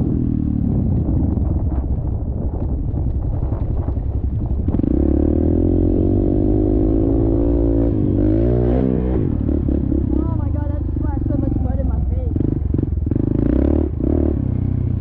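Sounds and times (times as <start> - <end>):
dirt bike engine revving: 4.7 - 15.0.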